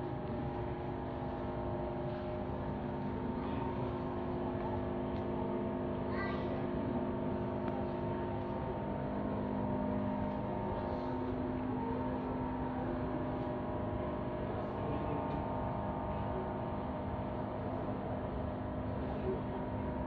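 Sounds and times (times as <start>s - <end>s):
faint voice: 6.1s - 6.8s
sustained low tones drone: 6.8s - 20.0s.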